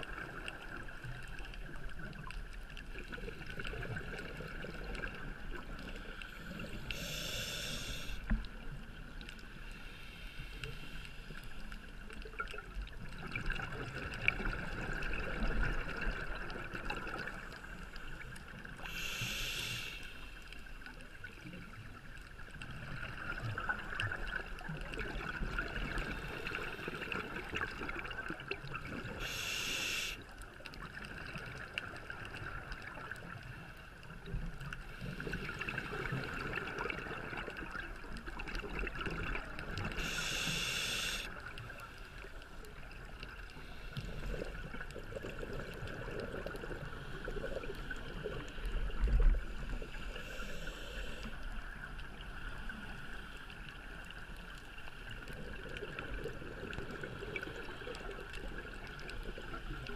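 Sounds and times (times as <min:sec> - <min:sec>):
water hiss: 0:05.9 - 0:08.4, 0:09.6 - 0:11.6, 0:18.8 - 0:20.6, 0:29.0 - 0:30.2, 0:39.8 - 0:41.7, 0:49.4 - 0:51.5
diver breathing through regulator: 0:06.0 - 0:08.4, 0:18.8 - 0:20.5, 0:29.1 - 0:30.2, 0:39.9 - 0:41.4, 0:49.8 - 0:51.4.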